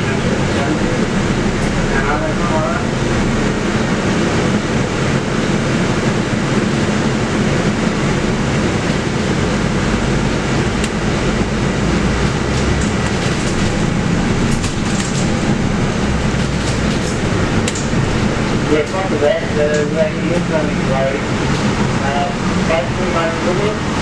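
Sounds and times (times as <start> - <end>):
bus engine drone: 0.0 - 24.0.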